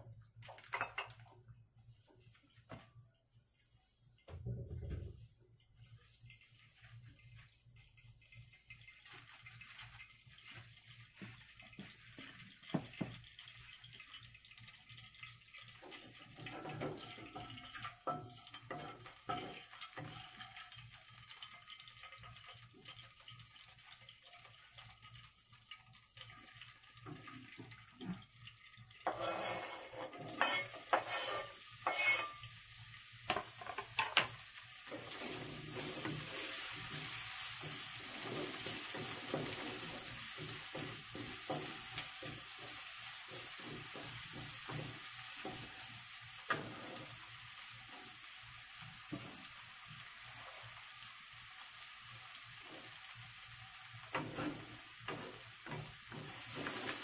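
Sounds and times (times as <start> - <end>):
oil heating in a wok: 0.0 - 57.0
garlic and leek sizzling in oil: 5.7 - 57.0
wooden spatula knocking a pan: 12.6 - 13.2, 35.8 - 45.9, 54.1 - 57.0.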